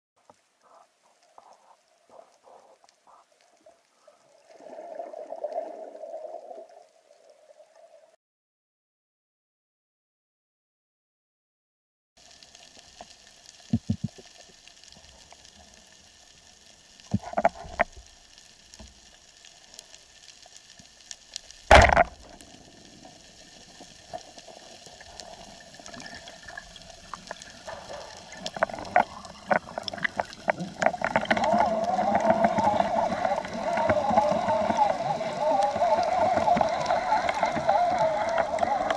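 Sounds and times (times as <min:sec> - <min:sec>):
underwater ambience: 0:00.2 - 0:08.2, 0:12.2 - 0:38.9
water noise: 0:00.2 - 0:08.2, 0:12.2 - 0:38.9
speargun firing thump: 0:21.7 - 0:22.2.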